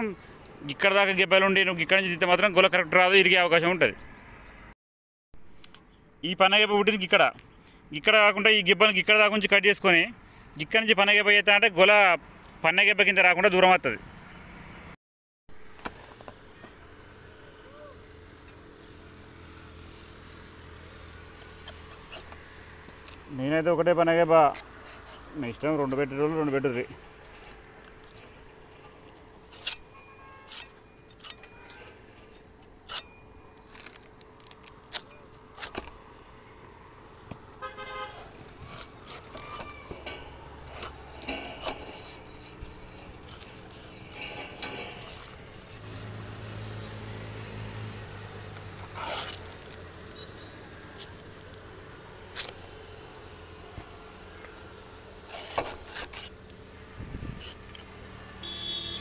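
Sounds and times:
faint vehicle engines: 0:00.0 - 0:04.8, 0:05.4 - 0:15.0, 0:15.6 - 0:59.0
knife cutting palm stalks: 0:21.2 - 0:23.3, 0:24.4 - 0:36.2, 0:37.2 - 0:46.4, 0:48.5 - 0:51.6, 0:52.2 - 0:52.6, 0:53.7 - 0:58.1
horn-like tone: 0:58.4 - 0:59.0.

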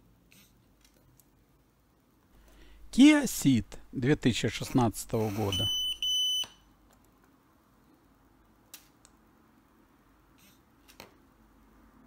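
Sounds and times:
high electronic beep: 0:05.5 - 0:06.5.

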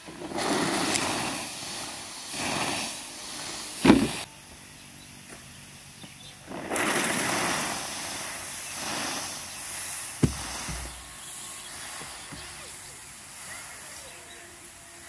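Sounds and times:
steam hissing: 0:00.0 - 0:15.0
sharp knock: 0:10.2 - 0:10.9.

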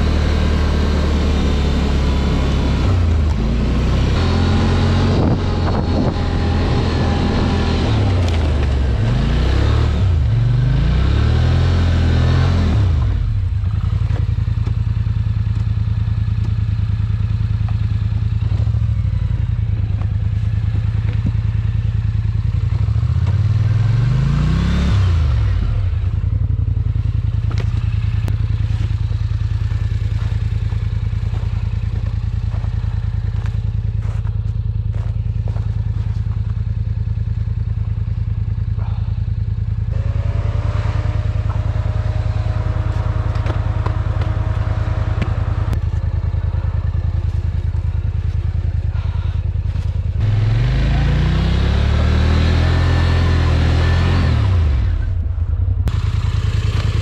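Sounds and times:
atv engine revving: 0:00.0 - 0:57.0
clatter and knocks over rough ground: 0:08.0 - 0:09.3, 0:13.0 - 0:23.5, 0:27.3 - 0:38.0, 0:42.8 - 0:50.2
steady high whine: 0:39.6 - 0:52.1.

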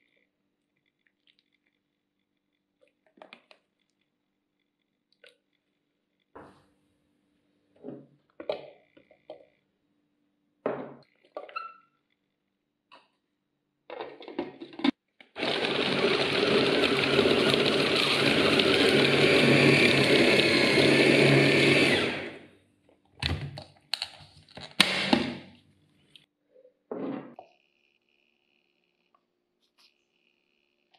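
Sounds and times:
electric food chopper running: 0:15.3 - 0:22.5.

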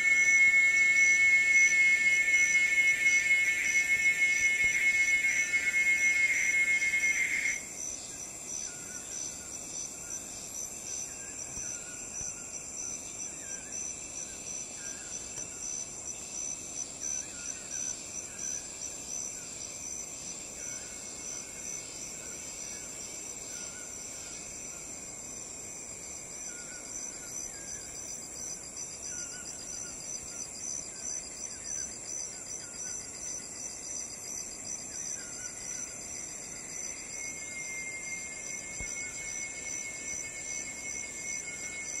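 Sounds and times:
loud high whistling tone: 0:00.0 - 0:07.7, 0:36.9 - 0:42.0
high pulsing insect chorus: 0:00.0 - 0:42.0.

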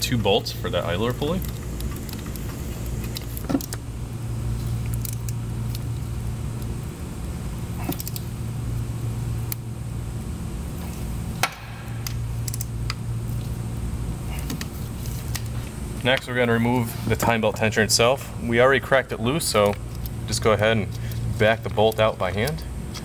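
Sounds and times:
steady low hum: 0:00.0 - 0:23.0
metallic clicks of bolts and tools: 0:12.0 - 0:12.7.

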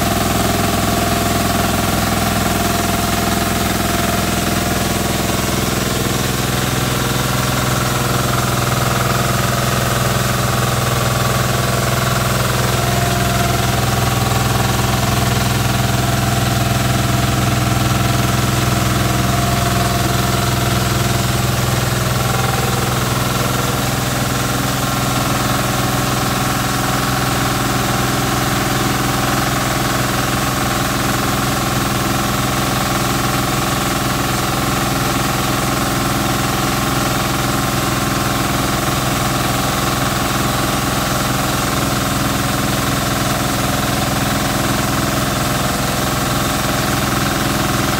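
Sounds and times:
mill whirring: 0:00.0 - 0:27.1
engine drone: 0:00.0 - 0:47.9.

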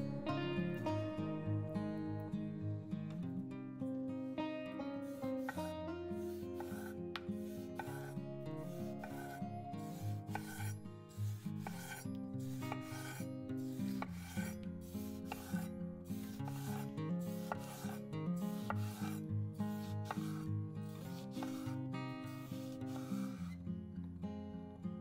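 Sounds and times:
soft background music: 0:00.0 - 0:23.4
knife slicing tomato on wooden board: 0:05.3 - 0:21.8, 0:22.4 - 0:23.5.

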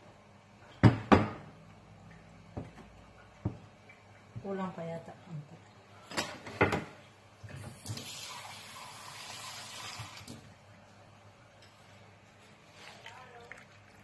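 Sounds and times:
kitchen tap running: 0:07.5 - 0:10.6.

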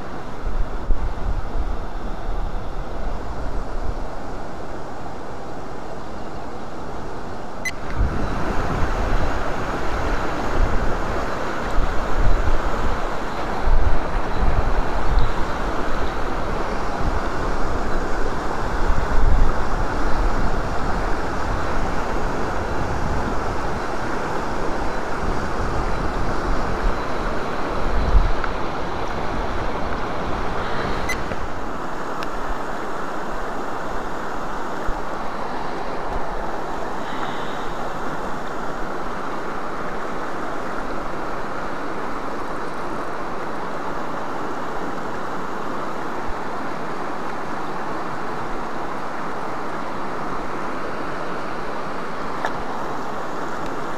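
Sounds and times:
stream rushing over rocks: 0:00.0 - 0:53.9
wind buffeting microphone: 0:07.7 - 0:32.8.

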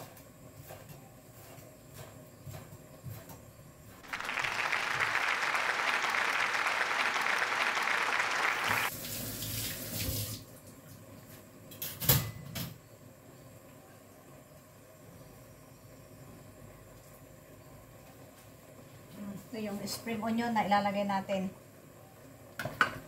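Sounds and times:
tap water running: 0:08.7 - 0:10.5.

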